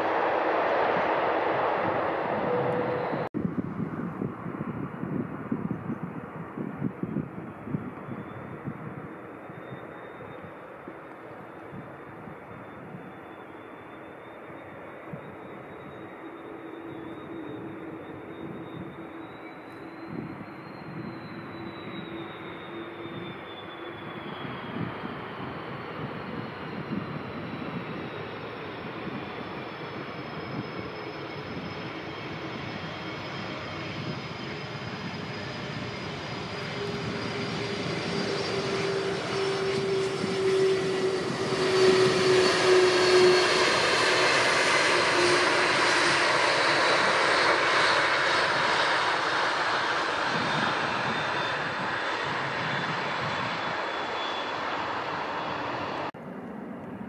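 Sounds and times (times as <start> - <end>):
jet airliner passing: 0.0 - 57.0.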